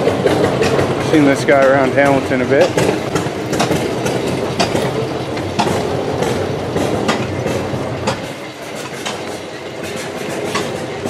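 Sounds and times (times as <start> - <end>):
machinery rumbling: 0.0 - 11.0
sharp mechanical clacks: 0.0 - 11.0.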